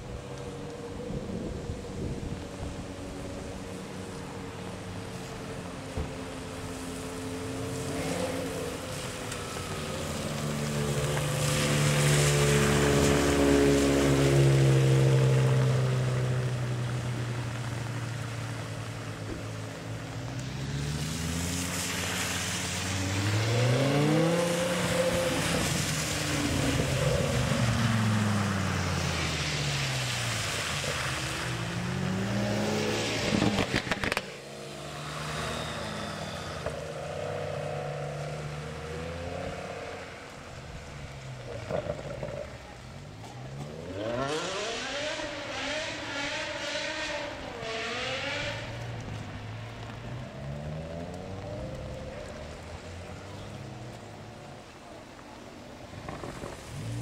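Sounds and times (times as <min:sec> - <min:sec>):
car engines passing: 0:00.0 - 0:57.0
tyres hissing through water: 0:19.8 - 0:33.7, 0:34.3 - 0:40.3
engine revving: 0:43.6 - 0:49.9.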